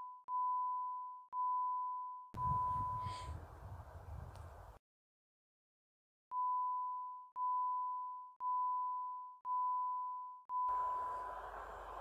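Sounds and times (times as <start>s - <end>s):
level crossing warning bell: 10.7s - 12.0s.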